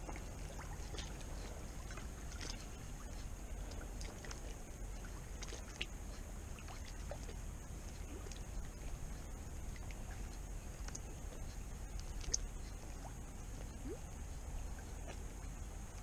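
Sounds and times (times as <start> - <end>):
low steady rumble: 0.0 - 16.0
small waves lapping on rocks: 0.0 - 16.0
faint ticks: 0.9 - 14.1.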